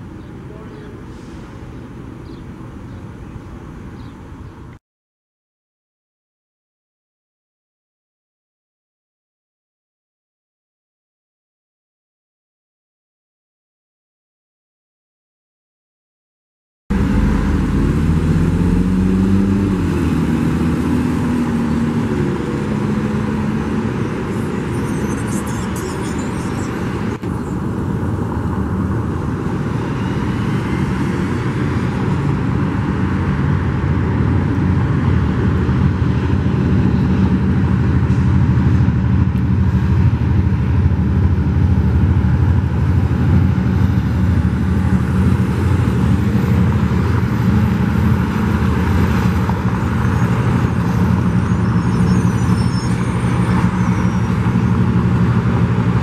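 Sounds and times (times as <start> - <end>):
diesel locomotive engine drone: 0.0 - 4.8, 16.9 - 56.0
street traffic: 0.0 - 4.8, 16.9 - 56.0.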